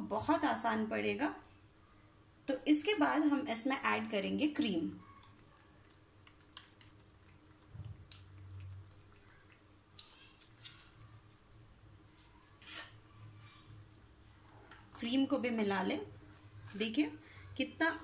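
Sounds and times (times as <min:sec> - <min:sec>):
gravy simmering and popping: 0:04.9 - 0:15.4
cream pouring: 0:05.3 - 0:15.0.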